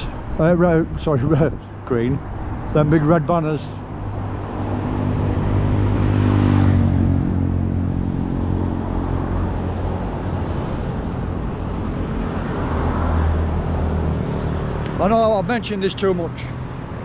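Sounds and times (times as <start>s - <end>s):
vehicle engine passing by: 4.2s - 15.1s.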